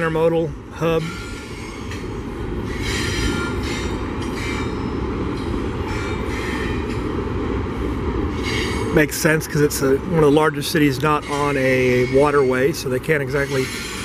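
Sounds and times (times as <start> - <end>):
train wheels rumbling on rails: 0.0 - 14.0
faint wheel squeal: 11.3 - 14.0.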